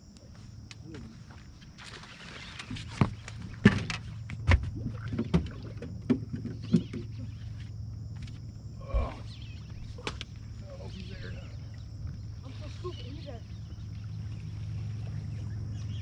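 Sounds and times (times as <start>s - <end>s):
knocks and clicks on boat deck: 2.9s - 7.4s
electric trolling motor hum: 5.9s - 16.0s.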